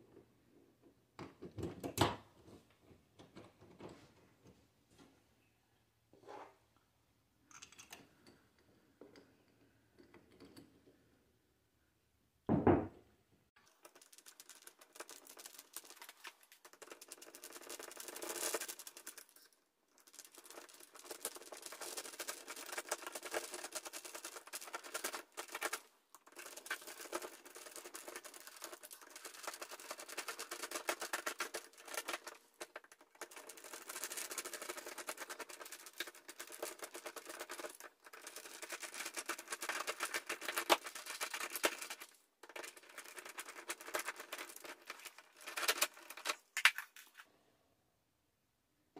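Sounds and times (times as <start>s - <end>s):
loud knock: 12.5s - 13.0s.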